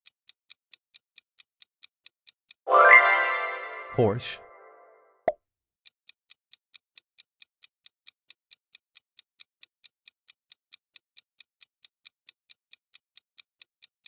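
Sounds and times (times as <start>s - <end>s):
countdown clock ticking: 2.6s - 4.9s.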